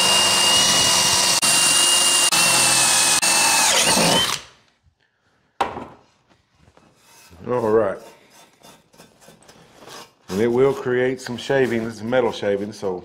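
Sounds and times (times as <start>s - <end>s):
drill whining through metal: 0.0s - 4.6s.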